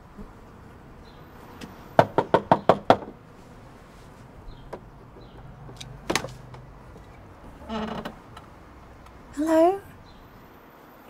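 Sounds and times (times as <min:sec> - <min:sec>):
knuckles rapping on door: 0:02.0 - 0:03.2, 0:04.6 - 0:06.8.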